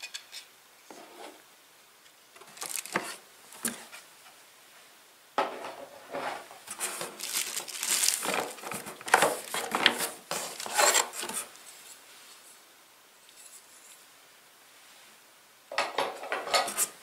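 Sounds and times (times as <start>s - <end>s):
plastic packaging crinkling: 2.4s - 3.8s, 6.6s - 11.5s.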